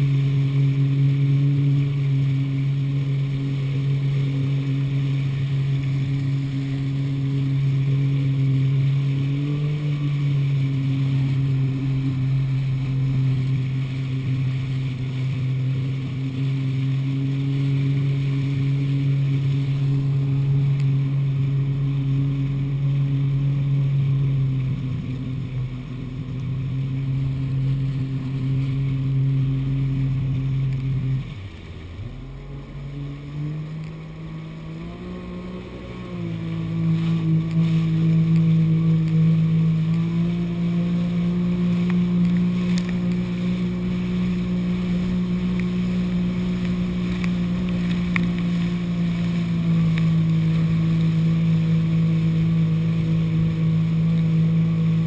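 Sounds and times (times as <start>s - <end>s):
jet ski engine running: 0.0s - 55.0s.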